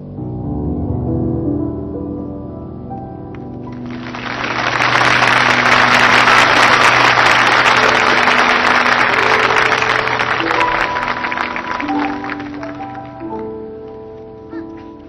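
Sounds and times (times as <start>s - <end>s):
music: 0.0s - 15.0s
audience applauding: 3.7s - 13.4s.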